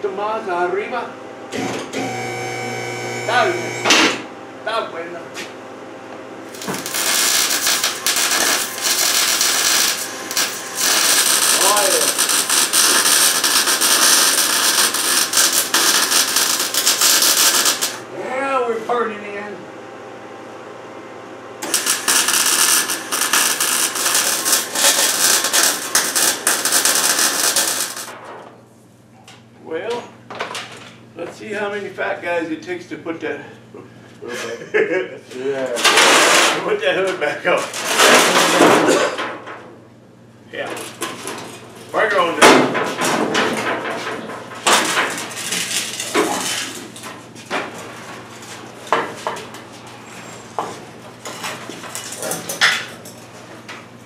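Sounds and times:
low shop hum: 0.0s - 54.0s
arc welding crackling sizzle: 2.0s - 3.9s, 6.4s - 18.1s, 21.6s - 28.2s, 44.6s - 47.0s, 51.2s - 53.1s.

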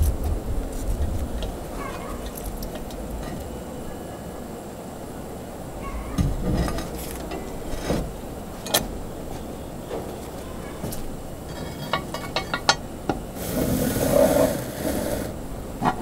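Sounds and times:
metal scraping: 10.2s - 12.8s, 13.4s - 16.0s
metal clinks and clanks: 11.5s - 12.8s.

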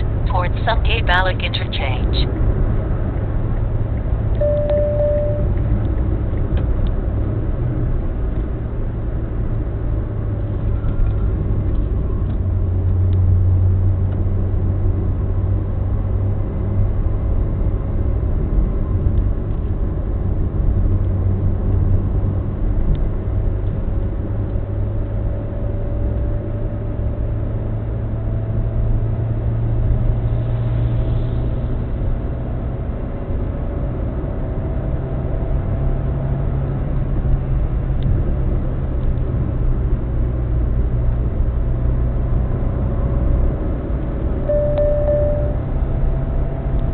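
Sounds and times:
faint rising tone: 4.4s - 5.5s, 44.4s - 46.8s.

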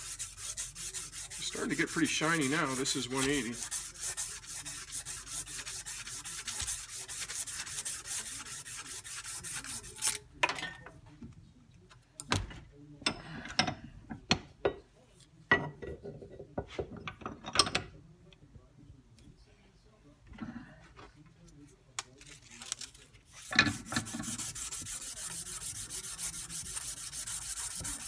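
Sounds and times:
sandpaper rubbing metal: 0.0s - 10.1s, 23.3s - 28.0s.

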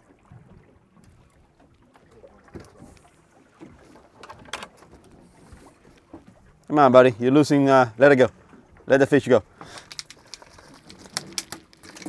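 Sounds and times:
water lapping against hull: 0.0s - 12.0s
small knocks and clicks: 9.6s - 12.0s.

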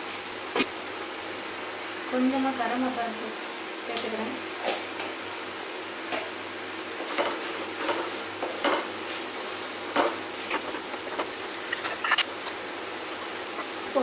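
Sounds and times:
masala sizzling in a pan: 0.0s - 14.0s.

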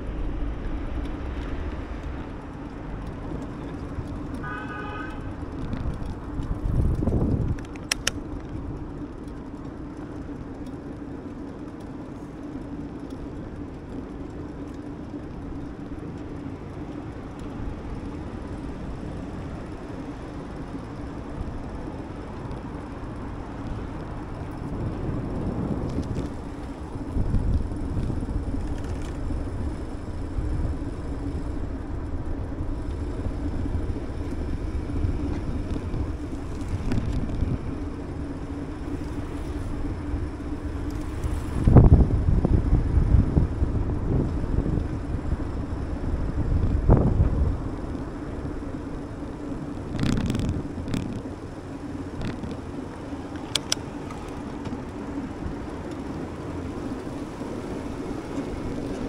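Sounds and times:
bicycle road rumble: 0.0s - 59.0s
wind on microphone: 5.2s - 7.8s, 24.6s - 47.9s, 49.7s - 51.4s.

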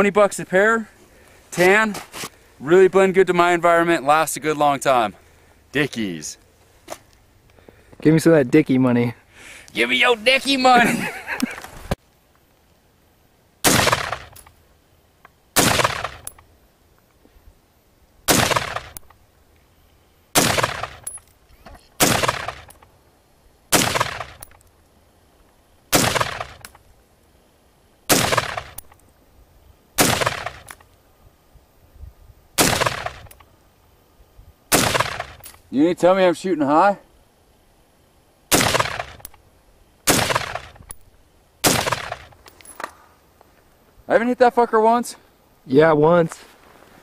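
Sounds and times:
rifle shots with echo: 13.6s - 14.4s, 15.6s - 16.3s, 18.3s - 19.0s, 20.4s - 21.1s, 22.0s - 22.7s, 23.7s - 24.5s, 25.9s - 26.7s, 28.1s - 28.8s, 30.0s - 30.7s, 32.6s - 33.3s, 34.7s - 35.4s, 38.5s - 39.3s, 40.1s - 40.8s, 41.6s - 42.4s.

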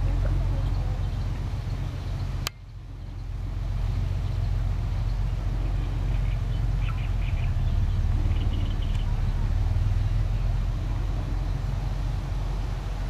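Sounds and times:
motor engine rumble: 0.0s - 13.0s
faint bird chirps: 0.5s - 10.4s.

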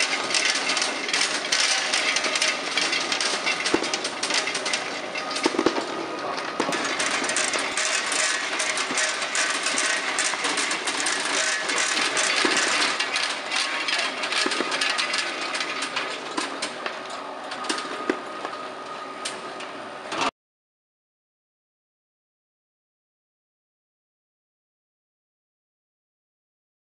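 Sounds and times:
sweets clattering in sorting machine: 0.0s - 20.3s.

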